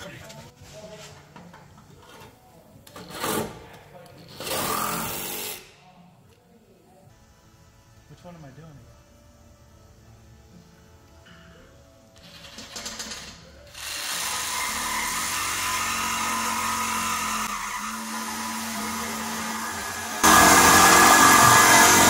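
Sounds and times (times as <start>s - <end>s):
reciprocating saw cutting steel pipe: 14.1s - 22.0s.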